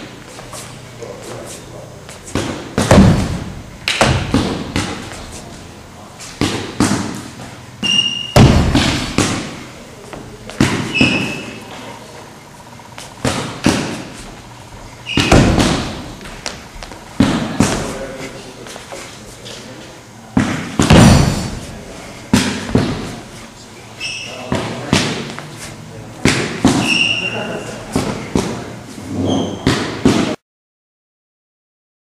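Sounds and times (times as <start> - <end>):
fast strikes and slaps: 2.3 - 5.2, 15.2 - 16.1
short high squeaks: 7.8 - 8.4, 10.8 - 11.7, 24.0 - 24.5, 26.8 - 27.4, 29.1 - 29.7.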